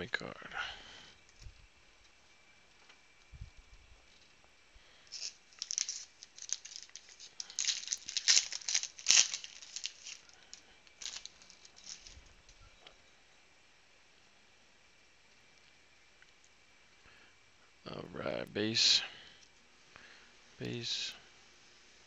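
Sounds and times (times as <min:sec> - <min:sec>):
foil wrapper tearing and crinkling: 0:05.0 - 0:12.3.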